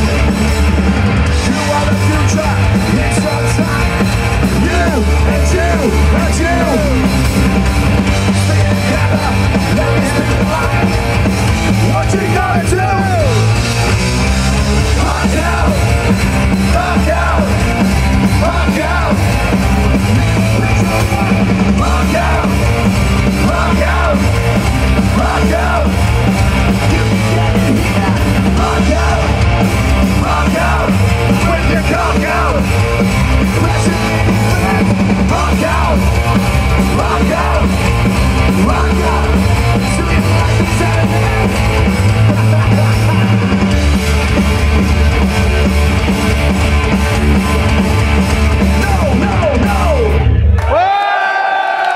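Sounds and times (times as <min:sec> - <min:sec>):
hard rock band playing: 0:00.0 - 0:50.8
person singing: 0:33.5 - 0:41.6.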